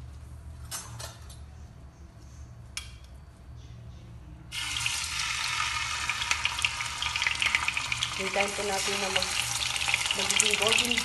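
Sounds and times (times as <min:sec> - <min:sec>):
chicken sizzling in hot oil: 0:04.5 - 0:11.0.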